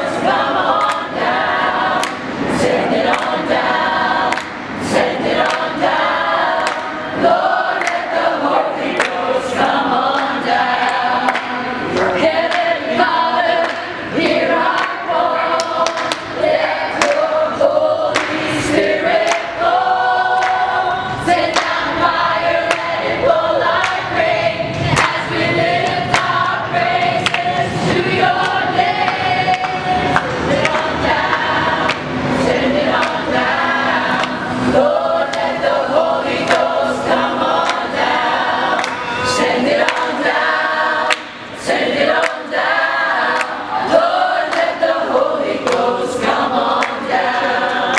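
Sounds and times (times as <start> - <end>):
choir singing: 0.0 - 47.9
hand claps: 0.6 - 1.2, 1.9 - 2.4, 3.0 - 3.6, 4.2 - 12.8, 13.5 - 17.4, 18.0 - 19.7, 20.4 - 20.7, 21.3 - 23.1, 23.8 - 24.1, 24.9 - 26.6, 27.2 - 27.6, 28.4 - 32.1, 32.9 - 33.3, 34.1 - 34.4, 35.2 - 35.6, 36.3 - 42.6, 43.3 - 43.7, 44.4 - 47.9.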